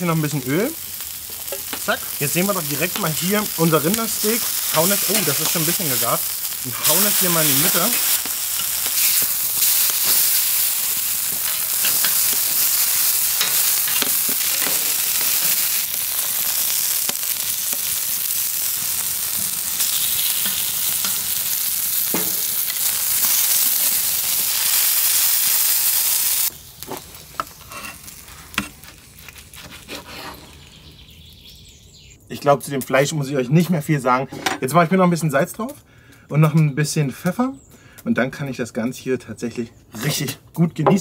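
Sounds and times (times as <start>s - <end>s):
meat and vegetables sizzling: 0.0s - 31.7s.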